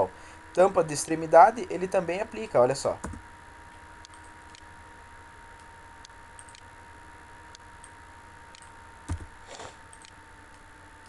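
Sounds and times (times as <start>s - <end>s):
low hum and hiss: 0.0s - 11.0s
computer mouse clicks: 4.0s - 4.7s, 6.0s - 6.7s, 8.5s - 9.3s, 9.9s - 10.7s.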